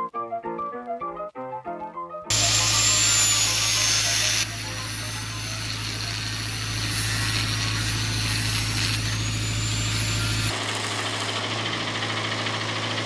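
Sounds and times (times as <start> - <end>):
angle grinder grinding steel: 2.3 - 11.5
arc welding crackle: 2.3 - 11.5.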